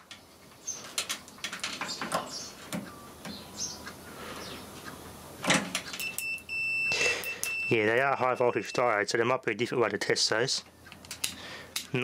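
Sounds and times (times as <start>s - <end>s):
test probes clicking and knocking: 10.9s - 12.0s.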